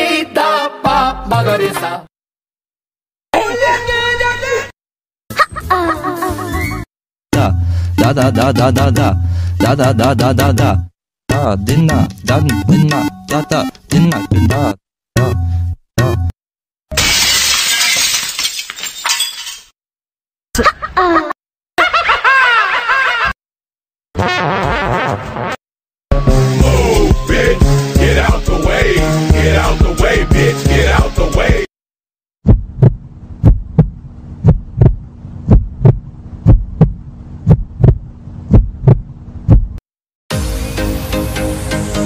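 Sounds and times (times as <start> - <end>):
person laughing: 5.3 - 6.8, 7.4 - 10.4, 20.6 - 23.4
glass shattering: 16.9 - 19.8
heartbeat thumps: 32.4 - 39.8
steady low hum: 32.5 - 39.8.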